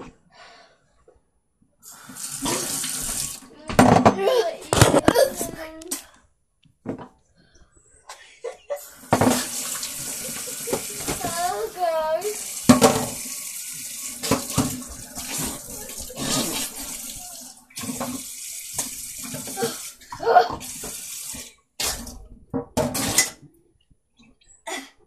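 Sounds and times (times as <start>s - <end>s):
water splashing: 8.9s - 20.0s
tap running into sink: 12.6s - 13.3s, 14.2s - 16.4s.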